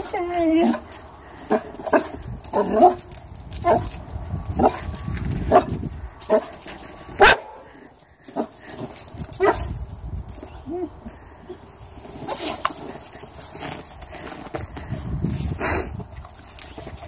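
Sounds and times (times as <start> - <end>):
puppy barking: 3.6 - 3.8, 5.5 - 5.7, 7.2 - 7.7, 9.4 - 9.7.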